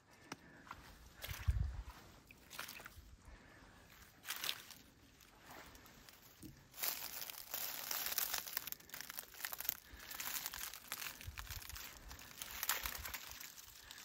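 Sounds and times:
rustling and crinkling: 0:04.1 - 0:14.0.

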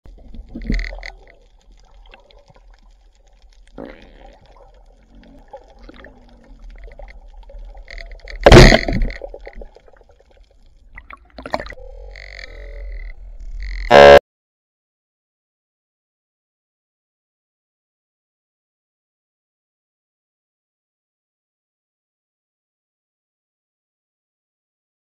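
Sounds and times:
underwater sloshing and bubbling: 0:00.0 - 0:13.9
water gurgling: 0:00.1 - 0:14.2
rushing gurgle: 0:03.7 - 0:10.0.

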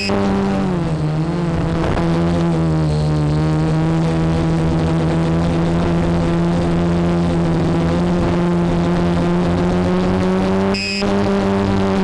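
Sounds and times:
quadcopter propellers humming: 0:00.0 - 0:12.0.

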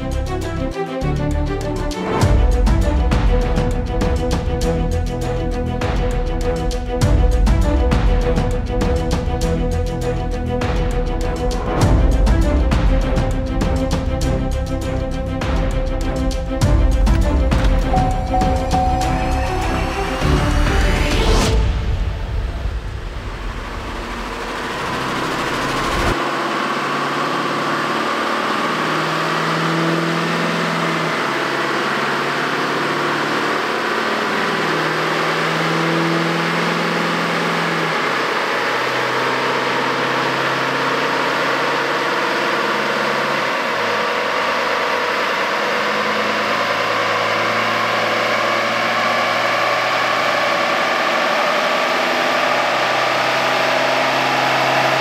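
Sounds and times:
diesel engine on dyno: 0:16.8 - 0:55.0.

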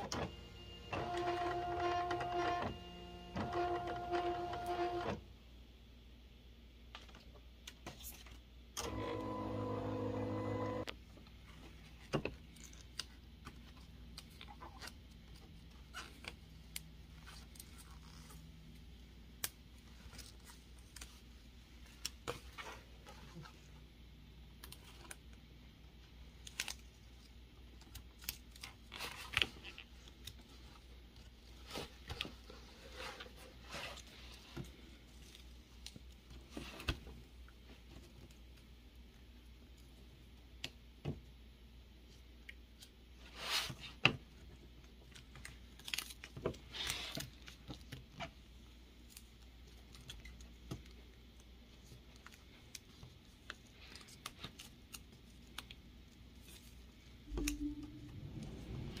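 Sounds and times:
rustling of handled materials: 0:11.0 - 0:40.6, 0:42.0 - 0:59.0.

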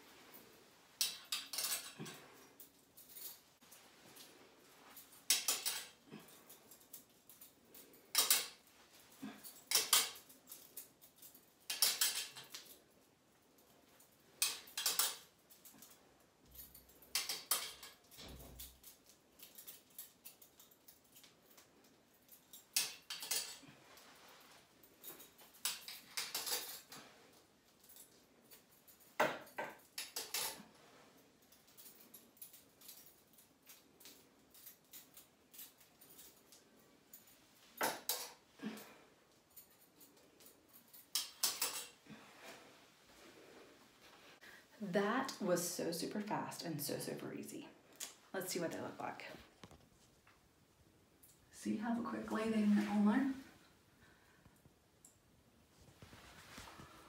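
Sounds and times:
metal curtain hooks jingling: 0:00.2 - 0:13.0, 0:14.0 - 0:42.2.

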